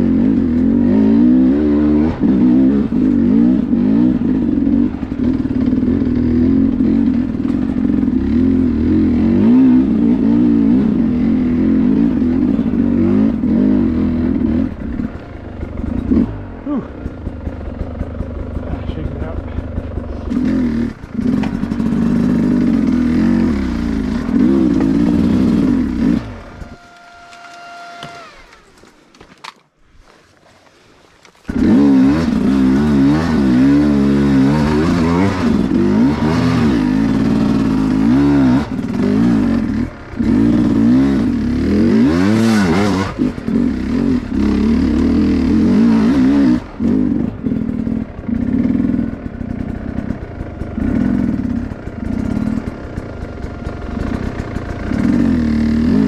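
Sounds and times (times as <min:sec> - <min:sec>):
dirt bike engine revving: 0:00.0 - 0:28.8, 0:31.3 - 0:56.0
clatter: 0:04.9 - 0:08.6, 0:17.0 - 0:26.3, 0:42.5 - 0:56.0.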